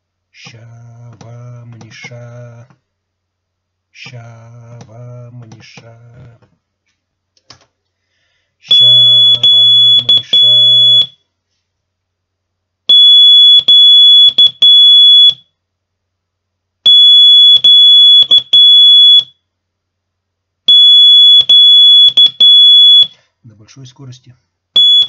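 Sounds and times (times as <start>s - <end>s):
person chanting: 0.4s - 2.8s, 4.0s - 6.4s
morse code oscillator tones: 8.7s - 11.2s, 12.9s - 15.4s, 16.9s - 19.3s, 20.7s - 23.1s, 24.8s - 25.0s.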